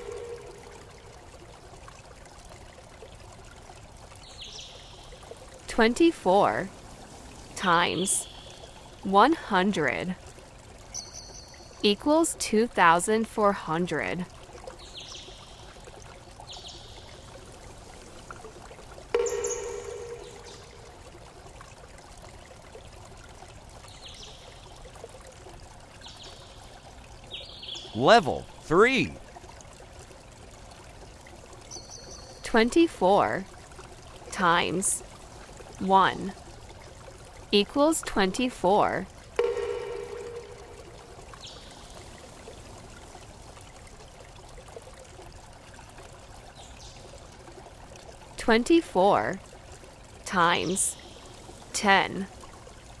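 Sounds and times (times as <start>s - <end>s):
ringing tone: 0.0s - 1.1s, 19.2s - 21.0s, 39.4s - 41.4s
faint high chirps: 19.2s - 21.0s, 39.4s - 41.7s.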